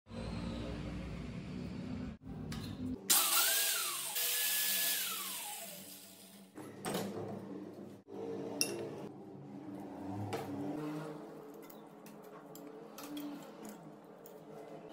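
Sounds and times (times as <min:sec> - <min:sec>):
angle grinder motor whirring: 0:03.1 - 0:06.2.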